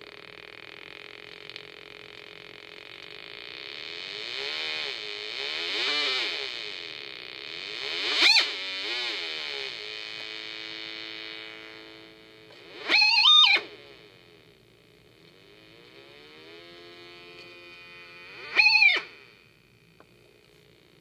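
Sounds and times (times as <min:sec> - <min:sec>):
buzzy electronic tone gliding: 0:03.2 - 0:14.5, 0:15.4 - 0:19.7
high electronic squeals: 0:07.7 - 0:09.5, 0:12.6 - 0:14.1, 0:18.1 - 0:19.4.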